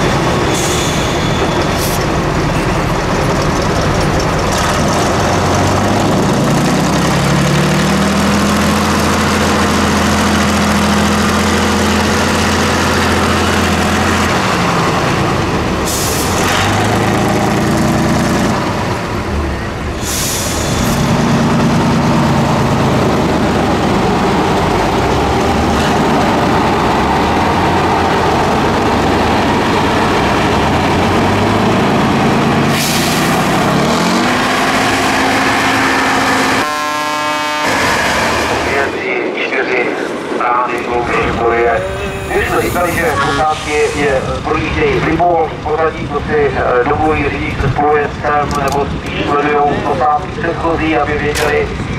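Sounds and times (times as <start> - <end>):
truck diesel engine revving: 0.0 - 39.2
air brake hisses: 0.5 - 2.0, 20.0 - 21.0.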